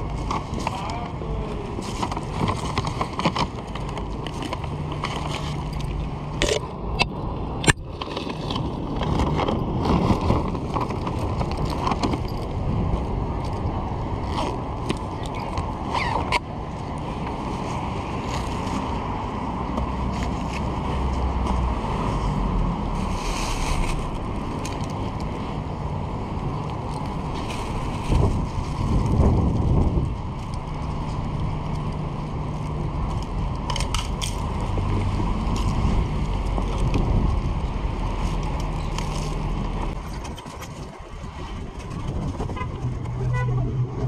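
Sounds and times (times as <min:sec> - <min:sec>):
wind and road noise: 0:00.0 - 0:44.0
low rumble: 0:18.9 - 0:44.0.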